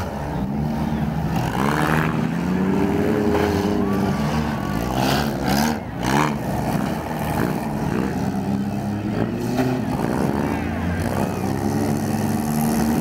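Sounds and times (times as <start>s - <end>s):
car engines revving: 0.0s - 13.0s.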